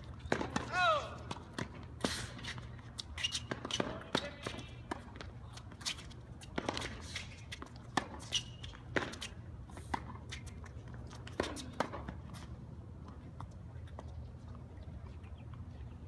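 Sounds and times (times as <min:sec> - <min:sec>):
shoes squeaking on court: 0:00.0 - 0:16.0
racket hitting tennis ball: 0:00.2 - 0:10.5, 0:11.1 - 0:12.2
tennis ball bouncing: 0:00.2 - 0:12.4.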